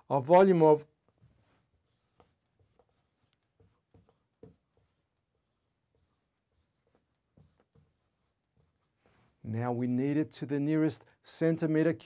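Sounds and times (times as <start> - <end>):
marker squeaking on whiteboard: 1.8 - 9.0.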